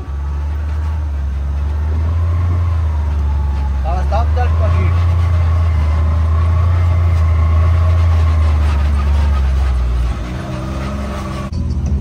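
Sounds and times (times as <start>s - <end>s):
vehicle engine droning: 0.0s - 12.0s.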